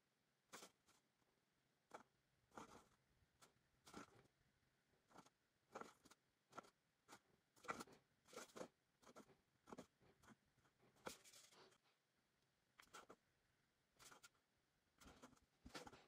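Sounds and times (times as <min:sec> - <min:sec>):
marker pen scratching metal can: 0:00.5 - 0:01.1, 0:01.8 - 0:04.3, 0:05.0 - 0:11.8, 0:12.8 - 0:13.2, 0:14.0 - 0:14.4, 0:15.0 - 0:16.0.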